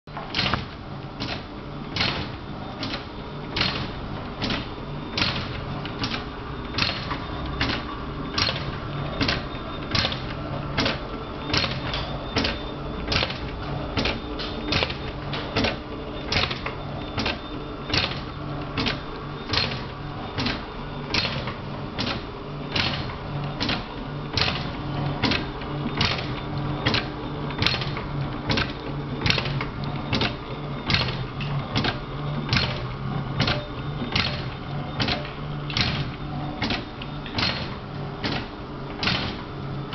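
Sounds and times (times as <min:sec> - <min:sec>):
motor hum: 0:00.1 - 0:39.9.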